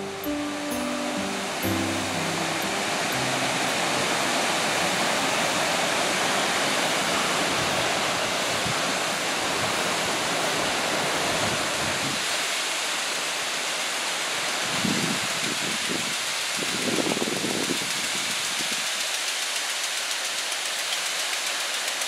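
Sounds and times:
waterfall rushing: 0.0s - 15.4s.

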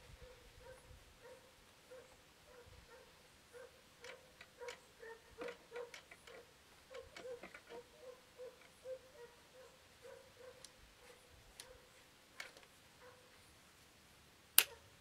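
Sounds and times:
dog barking: 0.2s - 13.3s, 14.7s - 14.9s.

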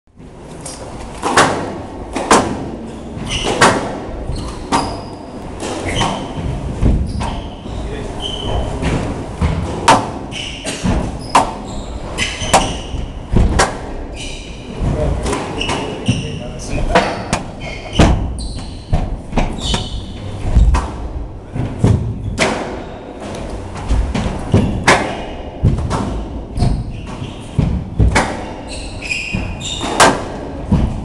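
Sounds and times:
ball hitting court walls: 1.0s - 14.0s, 14.7s - 31.0s
racket striking squash ball: 1.2s - 16.2s, 16.9s - 31.0s
shoes squeaking on court floor: 3.0s - 8.8s, 10.3s - 13.2s, 14.1s - 20.7s, 26.5s - 27.6s, 28.4s - 30.1s.

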